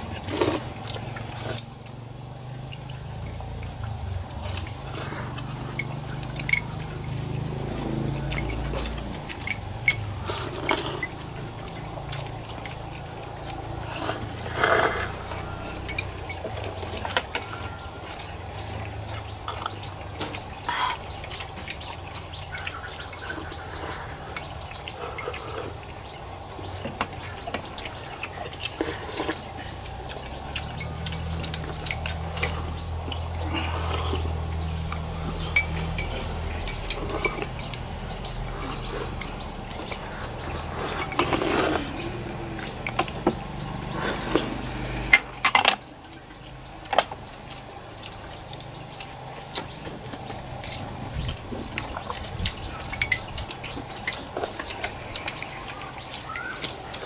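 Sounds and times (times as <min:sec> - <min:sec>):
people slurping noodles: 0:00.0 - 0:01.9, 0:03.0 - 0:26.5, 0:27.8 - 0:45.4
low steady hum: 0:00.0 - 0:57.0
utensils clinking against bowls: 0:02.7 - 0:57.0.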